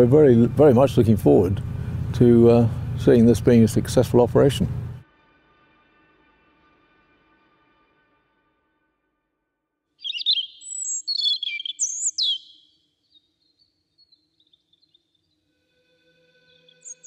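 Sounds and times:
songbird warbling: 10.0 - 15.1, 16.7 - 17.0
faint high bird notes: 15.7 - 17.0.

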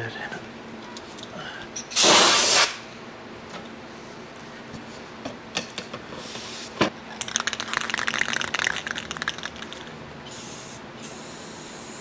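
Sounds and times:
aerosol can ball rattling: 7.2 - 10.0.

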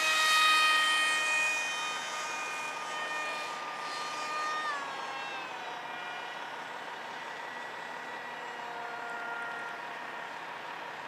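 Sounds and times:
model jet motor whining: 0.0 - 11.0.

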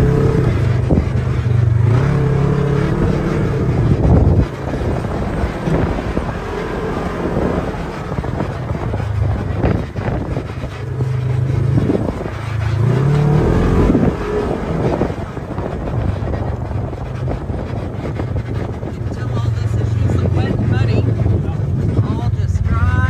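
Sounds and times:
utv engine revving: 0.0 - 23.0.

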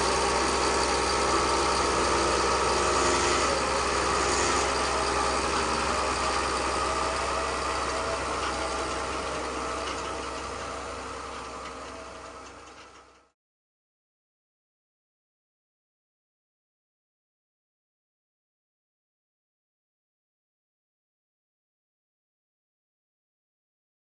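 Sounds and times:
toy excavator mechanical drone: 0.0 - 13.3.

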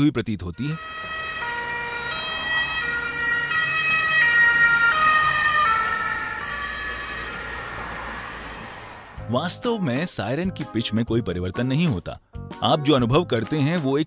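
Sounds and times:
ambulance siren passing: 0.7 - 9.5.

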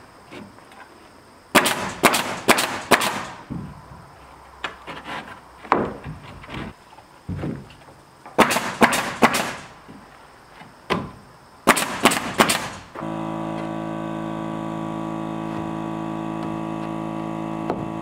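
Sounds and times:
steady hum of several pitches: 12.8 - 18.0.

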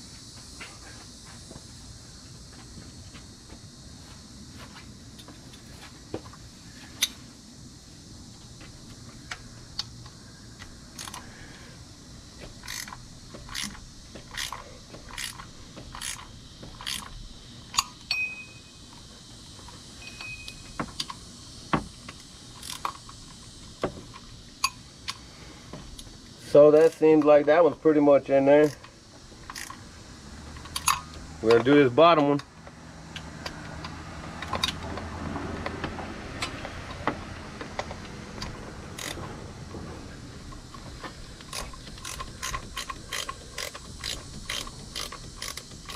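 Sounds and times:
wrench clicking on bolt: 10.9 - 11.3, 12.6 - 18.2, 22.6 - 23.3, 26.7 - 27.3, 28.6 - 29.8, 30.5 - 31.7, 37.8 - 39.2, 41.4 - 45.9.

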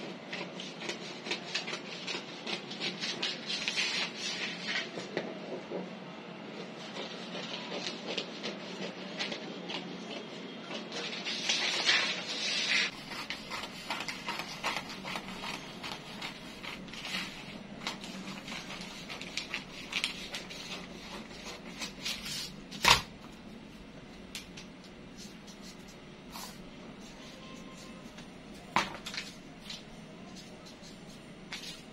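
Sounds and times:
scissors snipping paper: 0.0 - 5.6, 6.8 - 23.0
paper rustling: 0.3 - 5.8, 6.6 - 23.0, 27.0 - 31.9.

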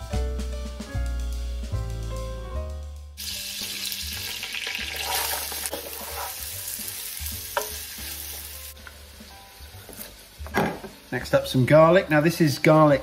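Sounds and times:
pork fat sizzling in a pot: 3.2 - 13.0.

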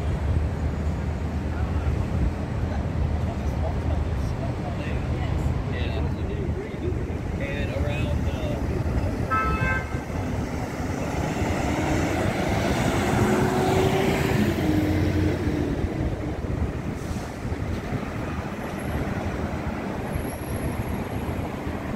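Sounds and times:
street traffic rumble: 0.0 - 21.9
bus passing close by: 8.4 - 21.9.

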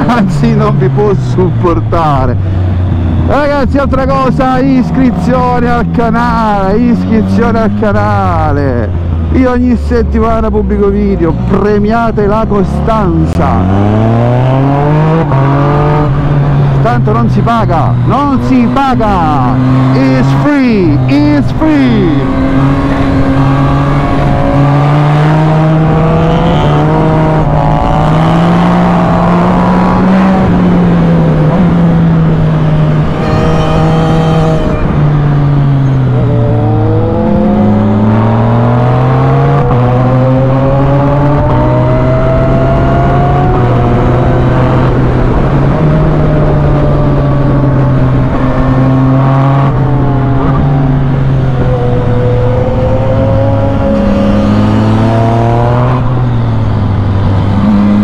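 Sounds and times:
motorcycle engine revving under load: 12.8 - 58.0.

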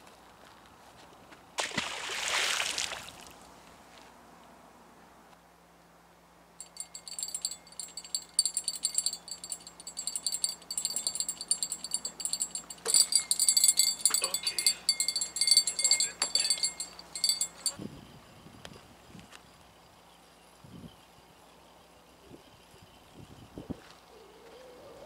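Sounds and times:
fish splashing into water: 1.6 - 3.3
light metallic jingling: 6.6 - 23.7.

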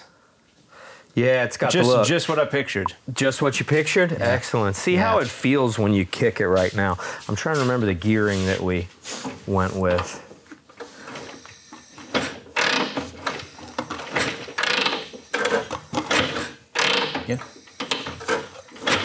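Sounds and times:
kick-starter ratcheting and clattering: 12.6 - 17.3.

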